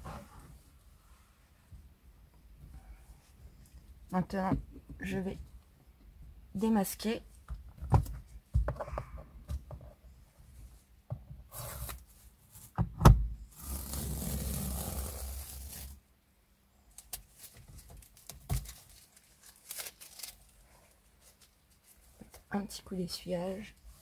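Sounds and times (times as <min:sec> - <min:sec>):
tape peeling off leather: 0:13.6 - 0:16.0
tape ripping: 0:13.6 - 0:16.0, 0:17.0 - 0:20.5.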